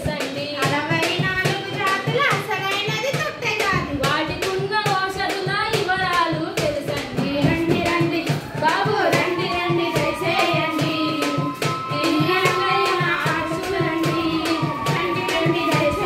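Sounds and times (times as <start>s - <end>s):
quick percussive beat: 0.0s - 16.0s
girls singing folk song: 3.6s - 16.0s.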